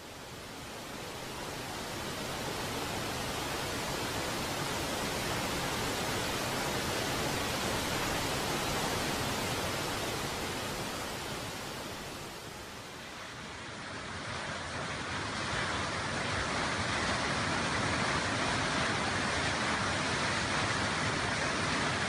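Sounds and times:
waterfall rushing: 0:00.0 - 0:13.2.

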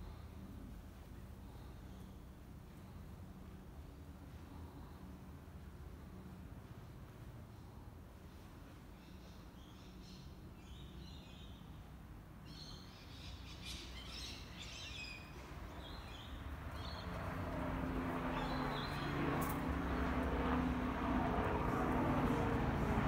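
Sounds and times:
street traffic hum: 0:11.7 - 0:23.0
birds chirping: 0:12.5 - 0:20.3.

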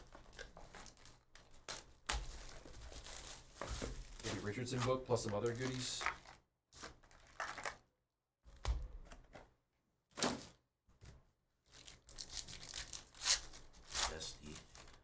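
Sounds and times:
foil packs crinkling: 0:00.0 - 0:07.8, 0:11.7 - 0:15.0
foil pack being torn open: 0:05.5 - 0:07.8.

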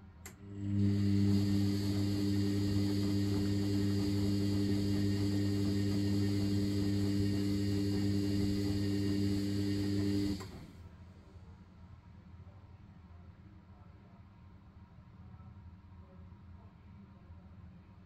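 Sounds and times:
washing machine motor humming: 0:00.3 - 0:10.8.

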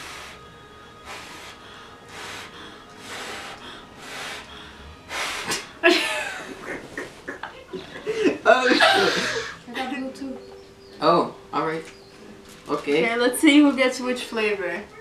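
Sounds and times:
person blowing hard breaths: 0:00.0 - 0:05.9
loud laughter: 0:05.5 - 0:09.6.

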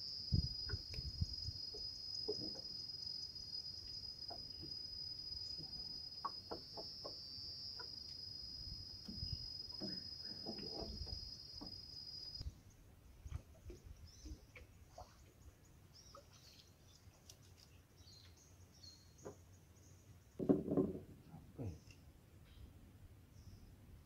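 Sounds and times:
small knocks: 0:01.7 - 0:02.7, 0:09.0 - 0:11.8, 0:20.4 - 0:21.2.

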